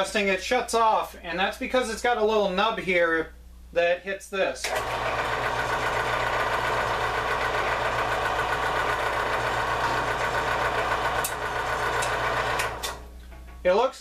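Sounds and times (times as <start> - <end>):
band saw motor hum: 4.7 - 13.1.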